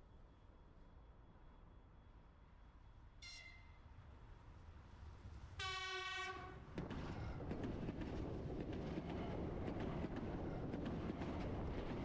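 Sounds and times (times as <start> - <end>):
train horn: 5.6 - 6.7.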